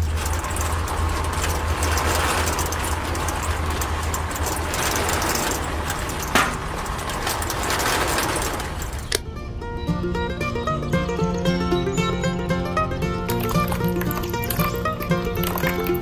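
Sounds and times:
mixer drum rattling and grinding: 0:00.0 - 0:09.4, 0:12.9 - 0:16.0.

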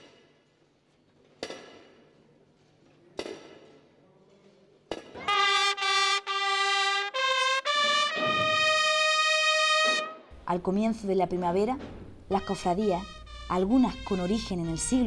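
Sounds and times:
bugle band playing held brass notes: 0:05.2 - 0:10.3, 0:12.3 - 0:15.0.

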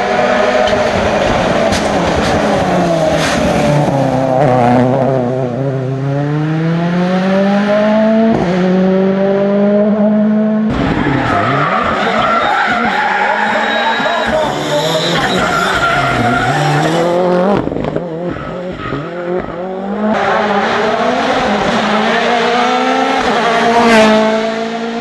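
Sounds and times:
rally car engines revving: 0:00.0 - 0:25.0.

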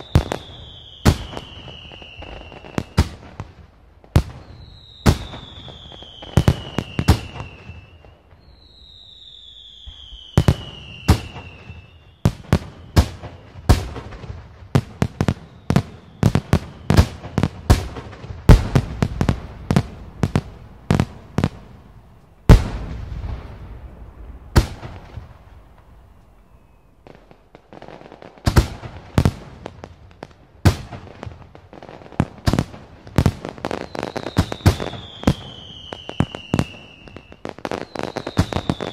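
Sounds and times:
descending firework whistle: 0:00.0 - 0:03.4, 0:04.2 - 0:29.5, 0:33.2 - 0:38.9
fireworks bangs: 0:00.0 - 0:38.9.

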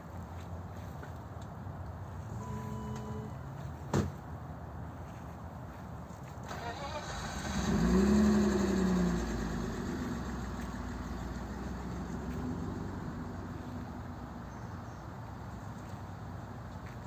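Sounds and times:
vehicle engine running: 0:07.3 - 0:14.6.

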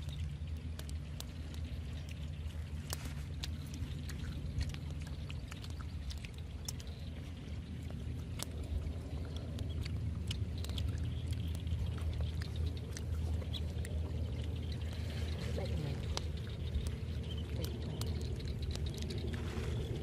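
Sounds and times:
wind rumbling on microphone: 0:00.0 - 0:20.0
leafy branches rustling: 0:19.3 - 0:20.0.

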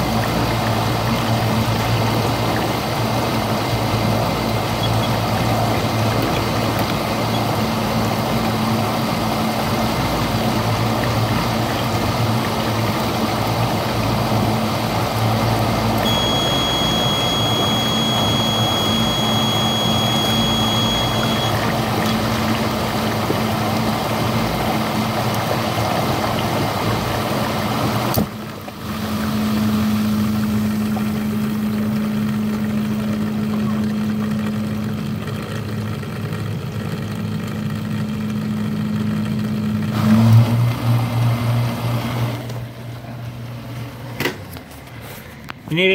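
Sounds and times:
swishing water: 0:00.0 - 0:35.8
dishwasher motor hum: 0:00.0 - 0:45.9
thin high whine: 0:16.0 - 0:22.1.

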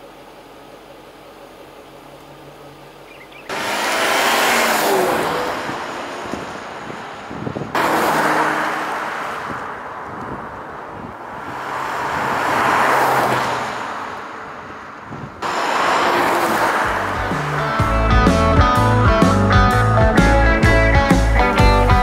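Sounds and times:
car driving past: 0:03.3 - 0:18.9.

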